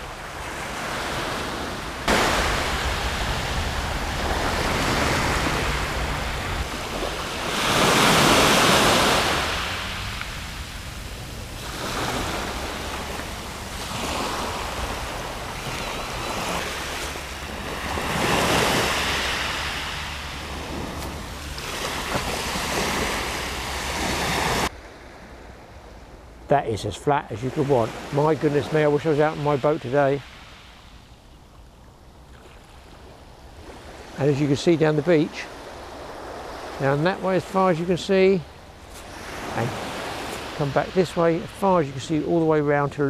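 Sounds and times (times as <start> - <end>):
waves washing on shingle: 0.0 - 24.7, 33.6 - 43.0
wind rumble on microphone: 0.0 - 26.4.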